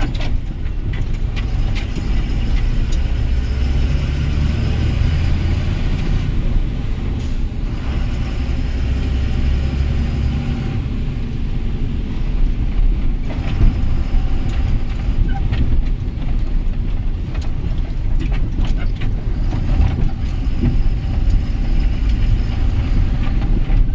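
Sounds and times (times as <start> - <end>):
cab knocking and rattling: 0.0 - 3.1, 12.4 - 23.9
truck engine rumbling: 0.0 - 23.9.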